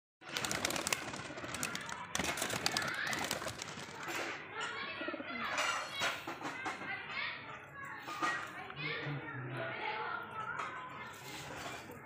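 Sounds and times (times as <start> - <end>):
pigeon wings flapping: 0.2 - 4.3
people's voices: 0.3 - 12.0.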